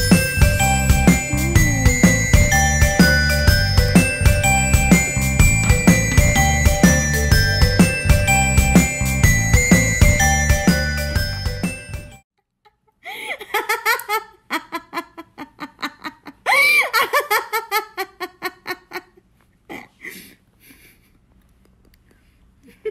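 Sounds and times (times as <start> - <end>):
woman laughing: 5.4 - 7.8, 12.7 - 21.0, 22.6 - 22.9.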